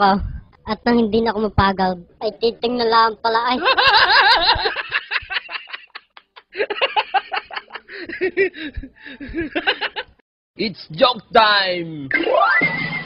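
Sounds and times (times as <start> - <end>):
laughter in rhythmic bursts: 3.6 - 10.2.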